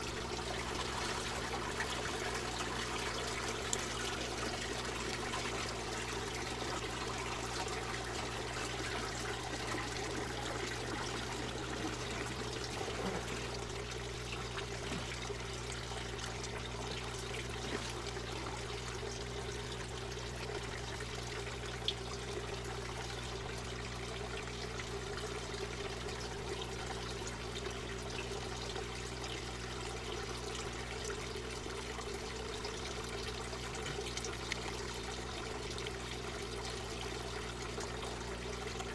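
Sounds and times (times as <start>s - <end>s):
constant low hum: 0.0s - 38.9s
water trickling and pouring: 0.0s - 38.9s.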